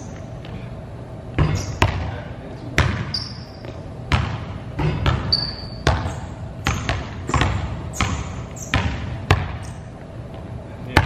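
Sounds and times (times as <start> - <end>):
sneaker squeak: 1.4 - 2.2, 2.8 - 10.0
basketballs bouncing on hardwood: 1.4 - 9.8.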